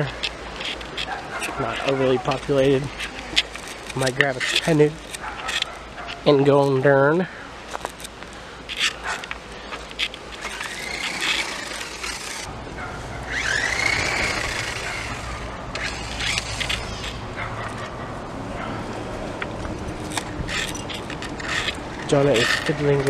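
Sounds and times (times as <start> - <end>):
car engine starting and humming: 7.9 - 23.0.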